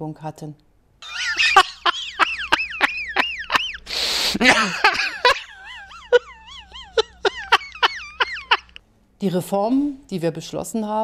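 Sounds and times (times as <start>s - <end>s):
man laughing uncontrollably: 1.0s - 8.8s
gasping breath: 3.8s - 4.5s.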